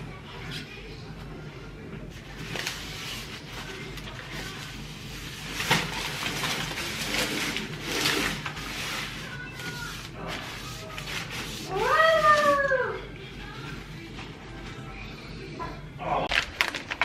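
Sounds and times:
paper towel wiping metal pan: 0:02.4 - 0:12.7.

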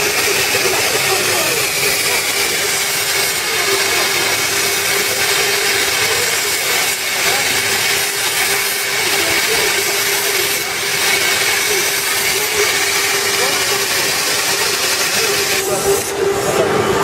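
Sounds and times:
steady high tone: 0:00.1 - 0:07.3.

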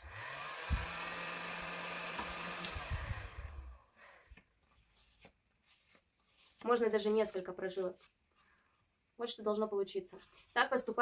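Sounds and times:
heat gun blowing hot air: 0:00.0 - 0:03.8.

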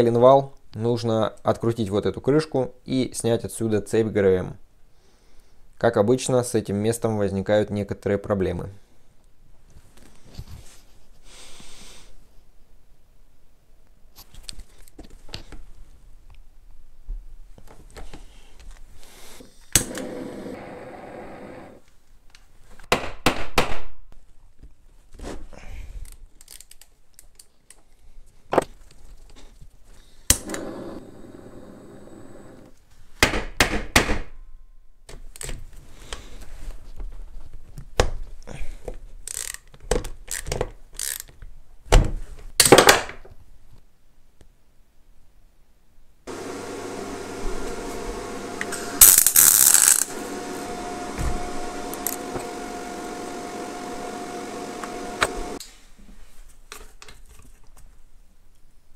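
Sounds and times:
gas torch hissing: 0:19.4 - 0:21.8, 0:30.3 - 0:32.7, 0:46.3 - 0:55.6.

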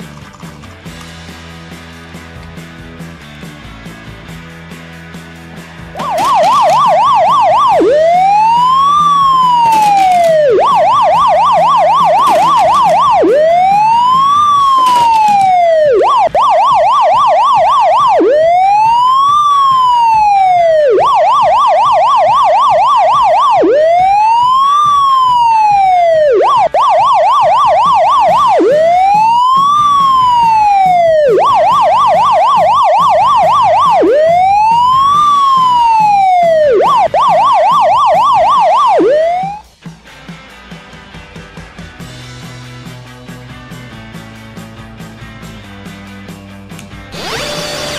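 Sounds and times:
emergency siren yelp and wail: 0:05.9 - 0:39.7, 0:47.1 - 0:47.9.

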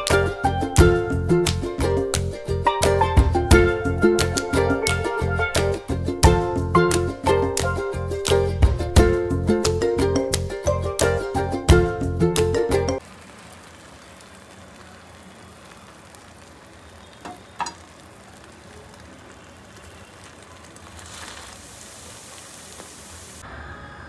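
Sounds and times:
background music: 0:00.0 - 0:13.0
steady hiss: 0:13.0 - 0:23.4.

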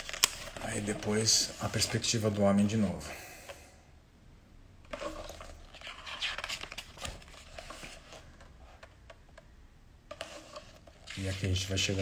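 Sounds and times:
book pages rustling: 0:00.0 - 0:03.0, 0:04.9 - 0:09.5, 0:10.1 - 0:12.0.

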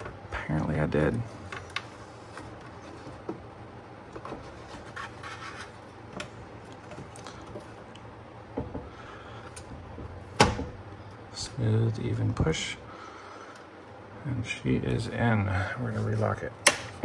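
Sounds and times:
rubbing and scraping: 0:04.2 - 0:05.9.

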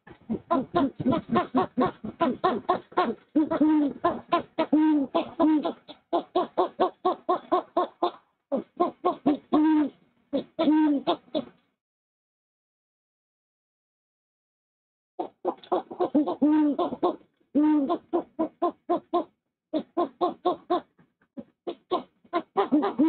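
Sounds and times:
owls hooting: 0:00.3 - 0:07.6, 0:21.7 - 0:23.0.

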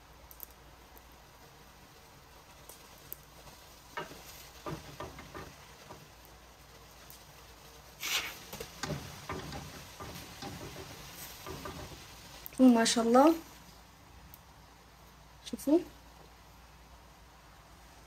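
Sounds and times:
light taps and knocks on pan: 0:03.9 - 0:06.4, 0:08.4 - 0:12.4
short hiss: 0:07.8 - 0:12.5.

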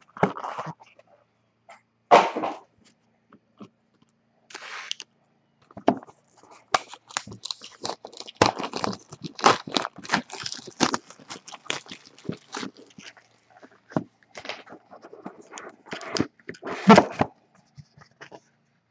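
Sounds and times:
cardboard scraping: 0:05.9 - 0:18.4
plastic wrap crinkling and tearing: 0:06.5 - 0:17.3.

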